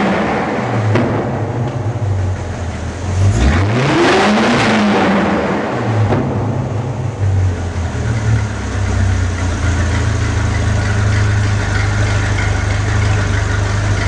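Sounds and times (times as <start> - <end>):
car engine idling after a rev: 0.0 - 3.7, 4.7 - 14.0.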